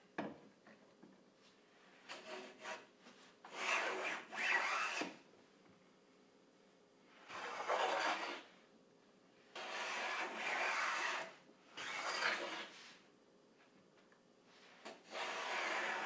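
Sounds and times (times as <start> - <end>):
hand plane cutting wood: 3.5 - 5.2, 7.3 - 8.5, 9.6 - 12.7, 15.0 - 16.0.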